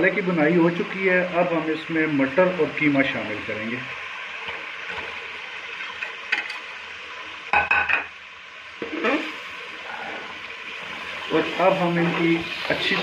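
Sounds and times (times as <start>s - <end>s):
meat sizzling in hot oil: 0.0s - 13.0s
metal spatula scraping pot: 11.4s - 13.0s.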